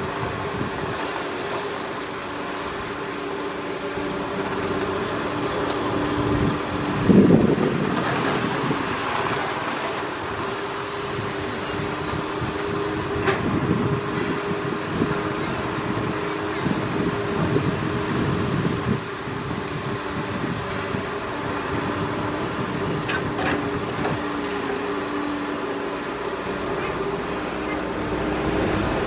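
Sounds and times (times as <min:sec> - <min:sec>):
excavator diesel engine running: 0:00.0 - 0:29.0
excavator digging soil: 0:00.0 - 0:29.0
motorbike passing: 0:26.2 - 0:29.0.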